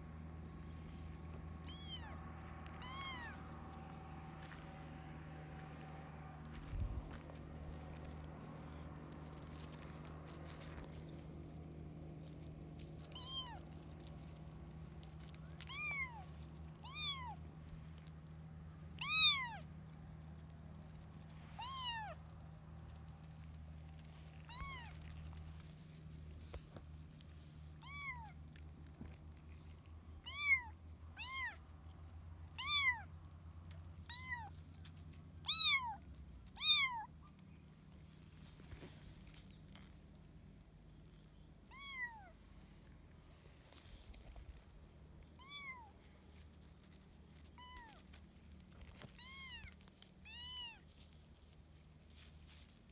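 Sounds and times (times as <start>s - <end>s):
kitten meowing: 1.6s - 3.4s, 13.1s - 13.6s, 15.6s - 16.2s, 16.8s - 17.4s, 19.0s - 19.6s, 21.6s - 22.2s, 24.5s - 24.9s, 27.8s - 28.4s, 30.2s - 31.6s, 32.6s - 33.1s, 34.1s - 34.5s, 35.4s - 36.0s, 36.6s - 37.1s, 41.7s - 42.4s, 45.4s - 46.0s, 47.6s - 48.0s, 49.1s - 50.8s.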